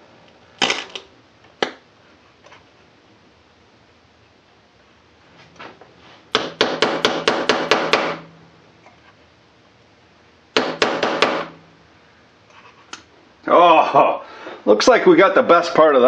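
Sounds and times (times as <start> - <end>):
hammer striking a motor: 6.3 - 8.3, 10.6 - 11.6.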